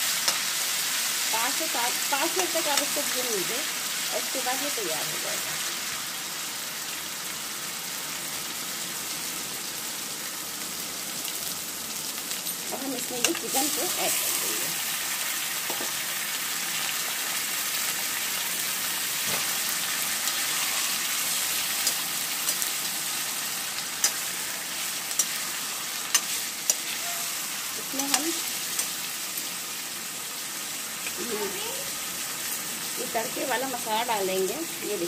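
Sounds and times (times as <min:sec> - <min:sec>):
chicken sizzling in hot oil: 0:00.0 - 0:35.0
steel spoon clinking against pan: 0:25.2 - 0:25.5.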